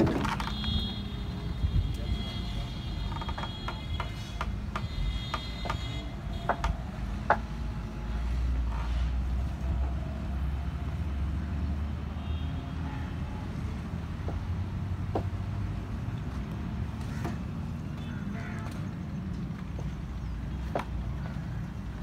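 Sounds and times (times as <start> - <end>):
bamboo pole clicking and creaking: 0.0 - 1.0, 1.8 - 7.5.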